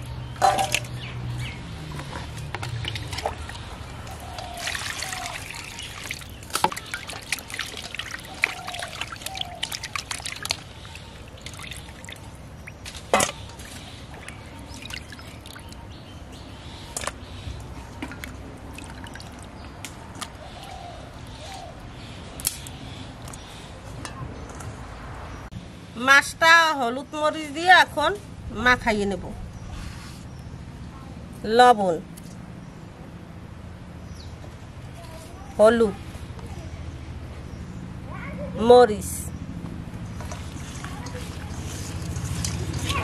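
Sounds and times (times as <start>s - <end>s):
water sloshing in steel bowl: 0.4s - 1.0s, 1.7s - 16.0s, 40.0s - 43.0s
small splashes and clicks: 1.9s - 15.8s, 16.9s - 17.2s, 17.9s - 20.4s, 40.2s - 43.0s.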